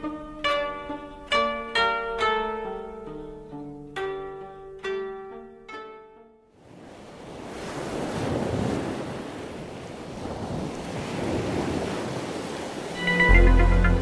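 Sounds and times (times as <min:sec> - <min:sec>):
ocean waves washing in: 0:06.6 - 0:14.0.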